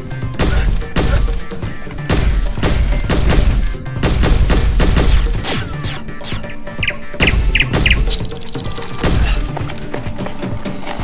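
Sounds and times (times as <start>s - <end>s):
automatic gunfire sound effects: 0.4s - 6.5s.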